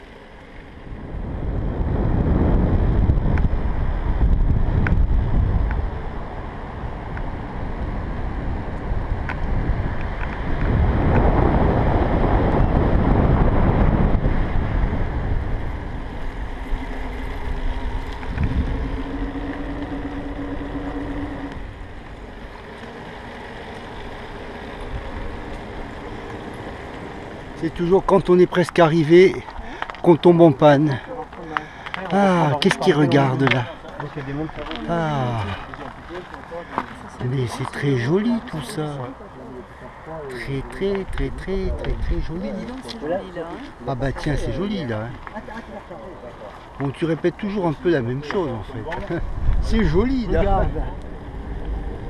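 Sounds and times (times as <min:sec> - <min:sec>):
steady hum: 0:00.0 - 0:28.5
road rumble: 0:00.0 - 0:52.0
wind buffeting microphone: 0:00.8 - 0:28.2, 0:39.9 - 0:43.0, 0:43.7 - 0:52.0.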